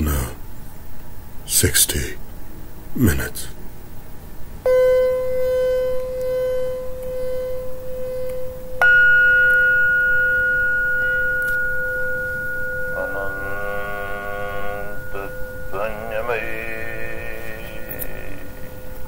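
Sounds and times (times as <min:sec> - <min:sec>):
meditation bell ringing: 0:04.7 - 0:19.0
person speaking: 0:12.9 - 0:19.0.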